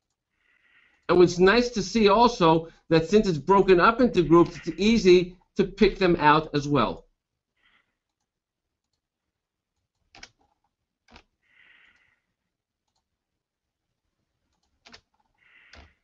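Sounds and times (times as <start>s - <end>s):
computer mouse clicking: 9.8s - 11.3s, 12.8s - 13.1s, 14.5s - 16.0s.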